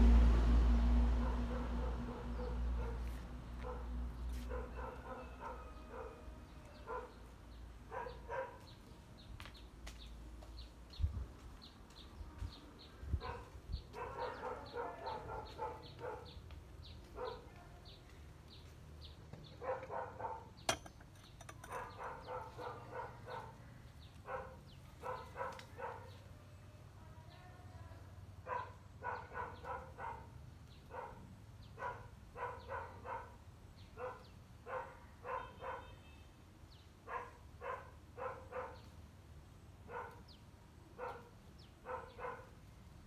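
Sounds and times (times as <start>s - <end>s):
dog barking and yipping: 1.2s - 7.2s, 7.9s - 8.7s, 13.2s - 16.4s, 17.2s - 17.5s, 19.6s - 20.6s, 21.6s - 23.6s, 24.2s - 26.2s, 28.4s - 30.3s, 30.9s - 33.4s, 34.0s - 35.9s, 37.1s - 38.9s, 39.9s - 40.3s, 41.0s - 42.5s.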